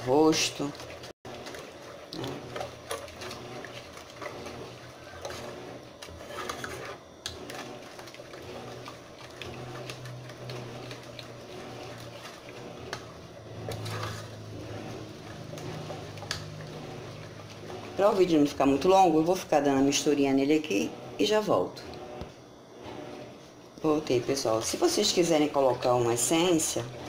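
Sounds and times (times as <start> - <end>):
spoon stirring thick liquid: 0.0 - 19.8
spoon scraping and knocking pot: 6.0 - 7.0.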